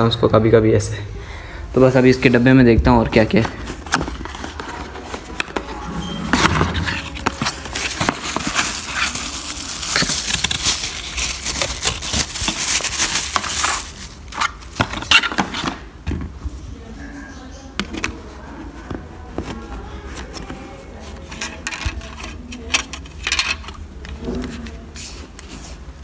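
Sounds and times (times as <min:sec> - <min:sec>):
cardboard box rustling and scraping: 0:03.3 - 0:15.9.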